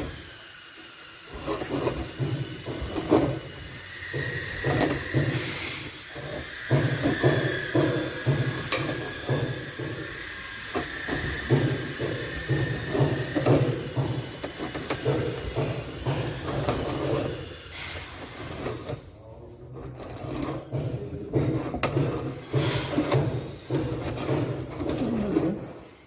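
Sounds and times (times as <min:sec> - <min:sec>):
auger scraping creak in wood: 0:16.4 - 0:25.9.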